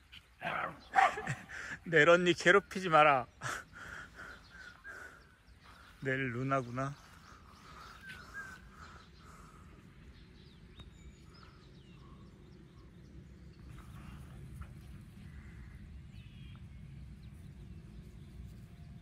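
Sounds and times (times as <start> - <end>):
small birds chirping: 0.0 - 19.0
low steady rumble: 8.3 - 19.0.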